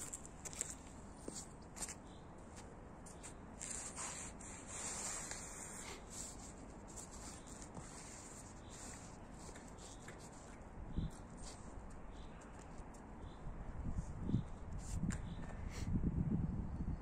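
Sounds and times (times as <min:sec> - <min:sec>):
sneakers scraping on stone: 0:00.0 - 0:04.0.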